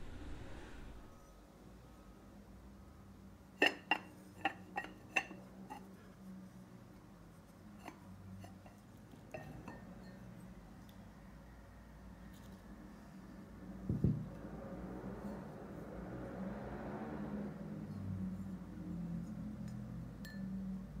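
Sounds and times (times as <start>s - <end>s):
ceramic lid clinking: 3.6s - 5.8s, 7.8s - 10.2s.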